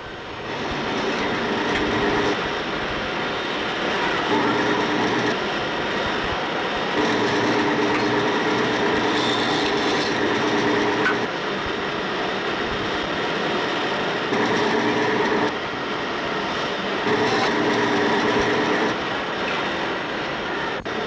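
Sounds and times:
band saw cutting wood: 0:06.9 - 0:11.3, 0:14.2 - 0:15.6, 0:17.0 - 0:19.7.

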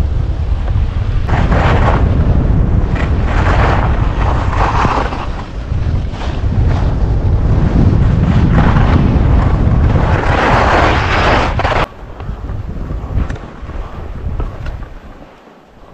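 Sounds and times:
wind buffeting microphone: 0:00.0 - 0:15.9
skis sliding on packed snow: 0:02.8 - 0:11.9.

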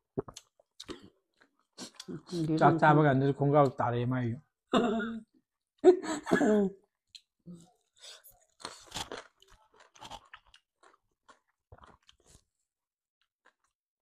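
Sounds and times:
wet mouth sounds: 0:00.1 - 0:02.5
chewing and crunching food: 0:00.2 - 0:02.6, 0:07.0 - 0:12.6, 0:13.2 - 0:13.8.

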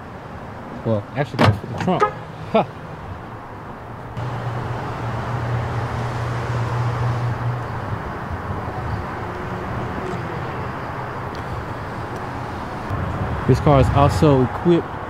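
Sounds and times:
car engine idling: 0:01.7 - 0:13.0.

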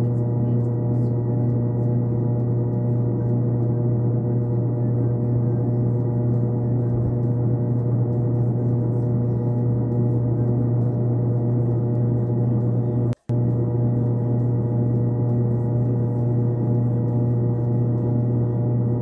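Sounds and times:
low droning tones: 0:00.0 - 0:19.0.

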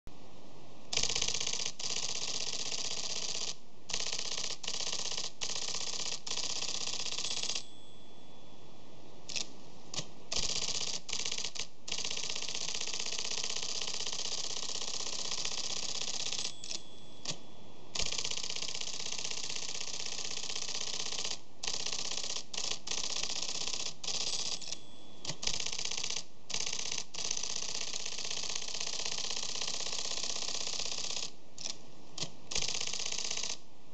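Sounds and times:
typewriter printer typing rapidly: 0:01.0 - 0:07.6, 0:10.3 - 0:16.8, 0:18.0 - 0:31.3, 0:32.5 - 0:33.6.

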